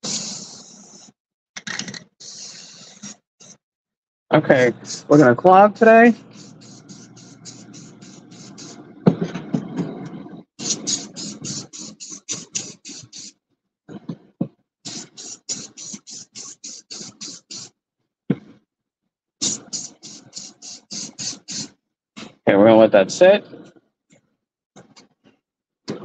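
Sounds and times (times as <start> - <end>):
spray paint can hissing: 0.0 - 1.1, 2.2 - 3.2, 4.8 - 5.2, 6.2 - 8.9, 10.6 - 13.3, 14.9 - 17.7, 19.4 - 21.7.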